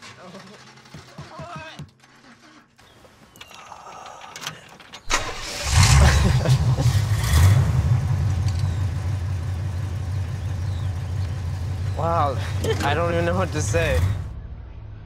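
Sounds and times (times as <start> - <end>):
car engine idling: 5.1 - 14.3
car engine starting and revving: 5.1 - 14.3.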